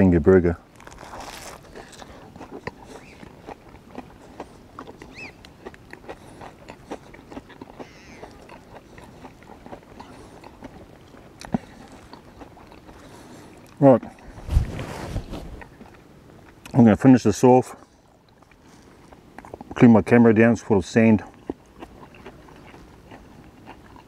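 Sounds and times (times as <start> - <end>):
person chewing: 0.7 - 14.5, 17.8 - 19.8, 21.2 - 24.0.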